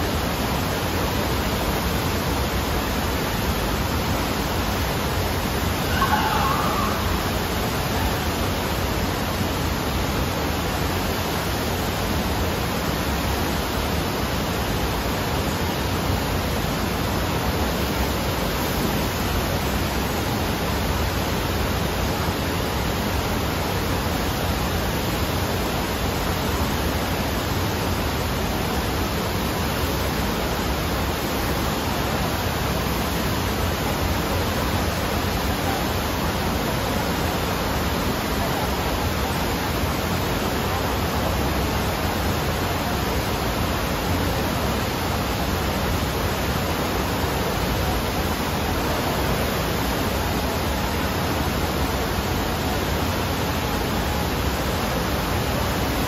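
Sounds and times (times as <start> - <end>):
rushing water roar: 0.0 - 56.0.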